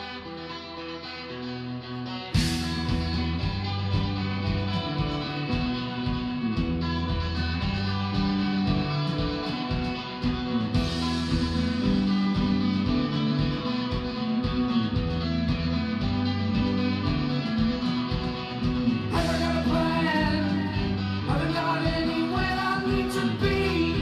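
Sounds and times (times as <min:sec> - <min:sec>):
bass guitar: 0:00.0 - 0:24.0
electric guitars: 0:00.0 - 0:24.0
drum kit: 0:02.3 - 0:24.0
person singing: 0:18.9 - 0:24.0.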